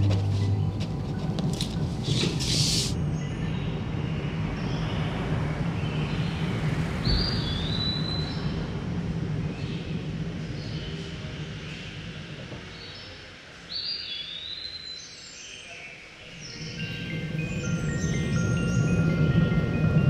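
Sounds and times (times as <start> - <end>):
low ambient rumble: 0.0 - 14.5, 16.3 - 20.0
short hiss: 2.1 - 3.0.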